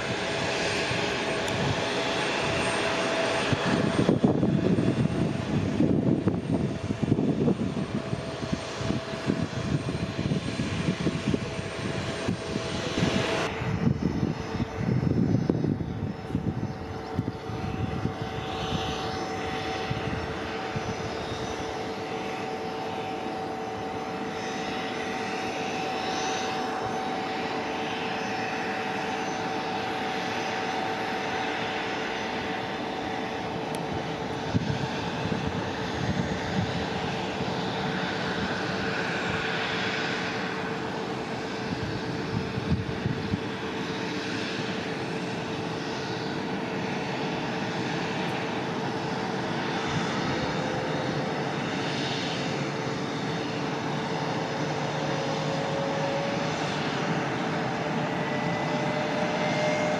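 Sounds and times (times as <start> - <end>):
jet engine whine: 0.0 - 59.9
gusty low rumble: 3.4 - 21.2, 33.8 - 39.4, 41.7 - 43.6.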